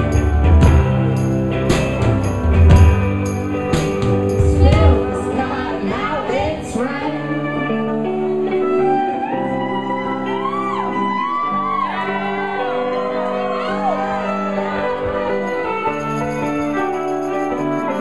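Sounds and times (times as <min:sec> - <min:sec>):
heavy low beat: 0:00.0 - 0:06.8
people singing: 0:04.4 - 0:07.0.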